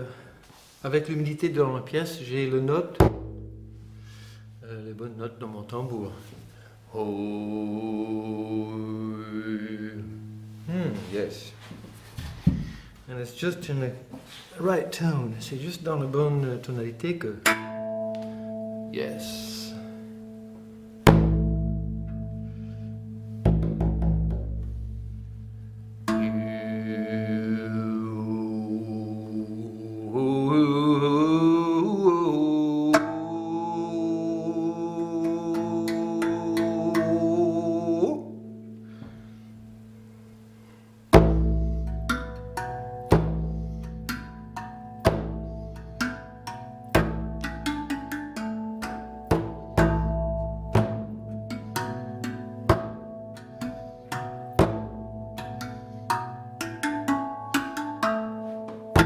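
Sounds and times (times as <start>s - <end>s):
tongue drum strikes: 2.9s - 5.0s, 8.2s - 11.7s, 17.4s - 29.6s, 32.7s - 39.9s, 41.1s - 59.0s
deep booming frame drum beats: 3.0s - 4.0s, 21.1s - 22.5s
steel tongue drum ringing: 3.0s - 4.7s, 10.0s - 11.6s, 17.4s - 29.0s, 41.1s - 59.0s
man humming a low chant: 5.9s - 11.6s, 26.1s - 38.6s.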